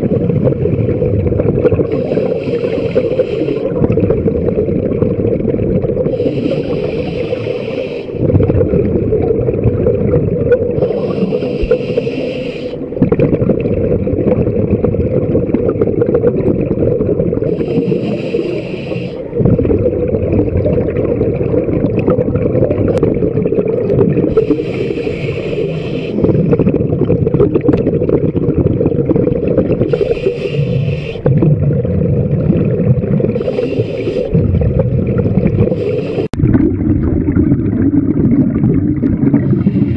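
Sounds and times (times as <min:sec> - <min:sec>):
exhaled bubbles underwater: 0:00.0 - 0:39.9
low water noise: 0:00.0 - 0:39.9
regulator inhalation hiss: 0:01.9 - 0:03.7, 0:06.1 - 0:08.2, 0:10.8 - 0:12.9, 0:17.5 - 0:19.3, 0:24.3 - 0:26.4, 0:29.9 - 0:31.3, 0:33.4 - 0:34.3, 0:35.7 - 0:36.4.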